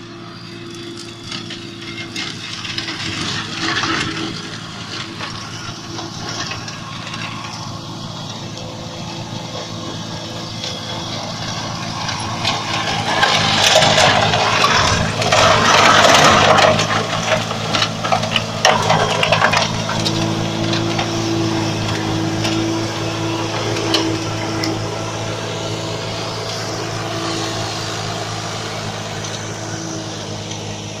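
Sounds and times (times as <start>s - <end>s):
mulcher shredding grass and brush: 0.0s - 31.0s
tractor diesel engine running: 0.0s - 31.0s
sharp cracks from debris: 12.4s - 20.2s.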